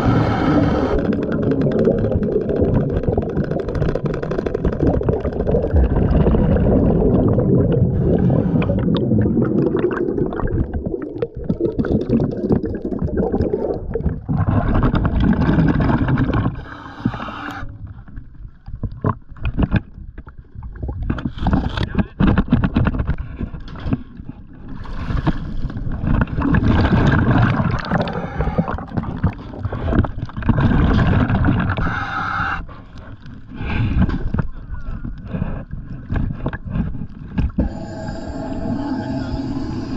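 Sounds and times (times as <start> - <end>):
muffled diver bubbles: 0.0 - 22.8, 25.5 - 32.8
water sloshing and splashing: 0.6 - 31.9.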